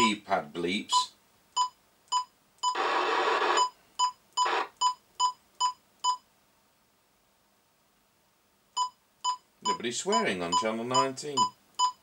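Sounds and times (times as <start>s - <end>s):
radio loudspeaker hiss: 2.8s - 3.6s.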